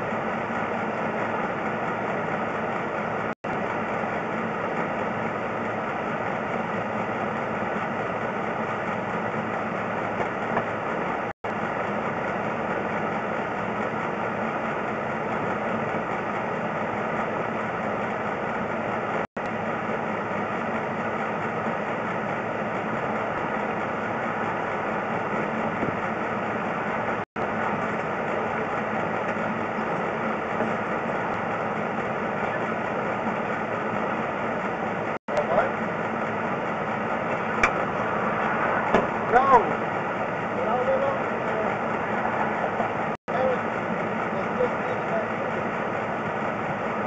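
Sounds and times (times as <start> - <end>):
steady machine drone: 0.0 - 47.0.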